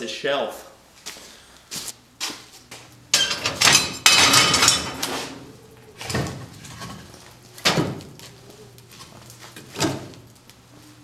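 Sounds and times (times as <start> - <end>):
cast iron stove parts scraping: 3.1 - 10.4.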